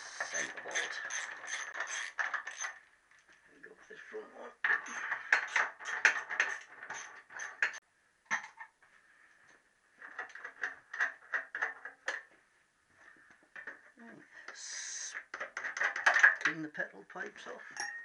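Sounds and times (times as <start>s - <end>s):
spanner clinking on metal fittings: 17.8s - 18.0s.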